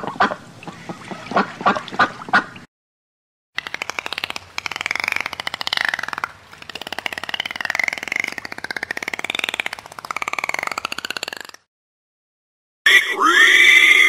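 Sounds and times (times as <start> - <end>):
pulsed animal call: 3.6 - 11.6, 12.9 - 14.0.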